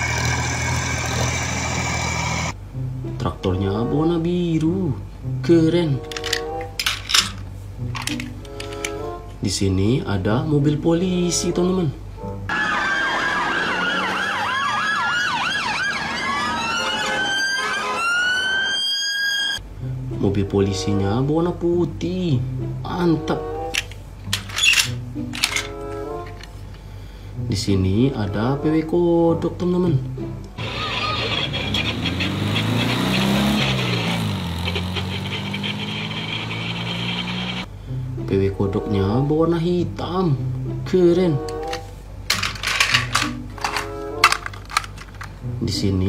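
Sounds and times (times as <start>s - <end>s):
police sirens yelping and wailing: 12.5s - 19.6s, 30.6s - 37.7s
car engine driving past: 30.6s - 37.7s.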